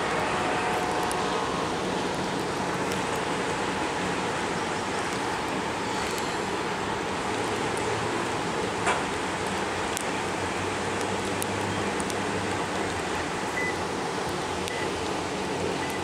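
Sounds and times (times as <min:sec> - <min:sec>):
rushing noise: 0:00.0 - 0:11.2
diesel locomotive engines droning: 0:00.0 - 0:16.0.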